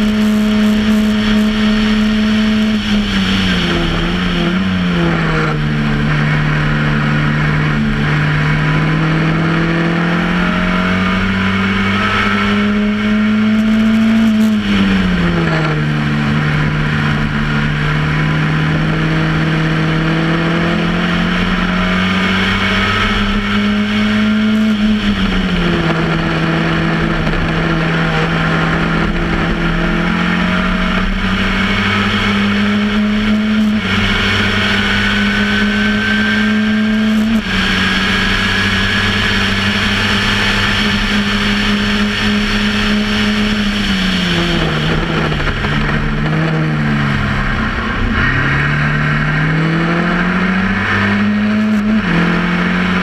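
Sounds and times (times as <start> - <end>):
race car engine running hard: 0.0 - 53.0.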